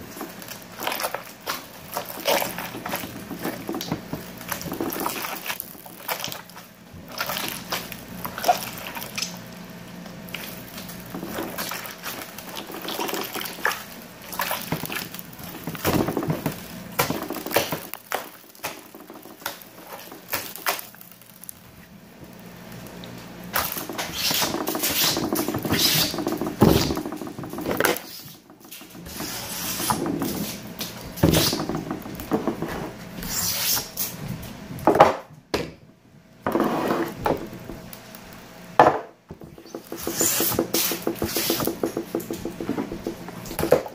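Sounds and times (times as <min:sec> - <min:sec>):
slime squishing and crackling: 0:00.0 - 0:32.3.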